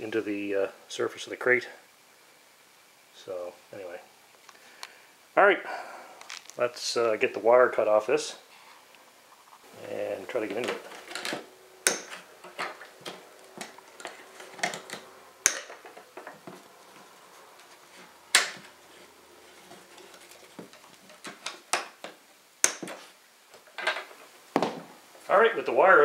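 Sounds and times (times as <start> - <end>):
pliers snipping wire: 11.2 - 16.0, 21.1 - 23.0.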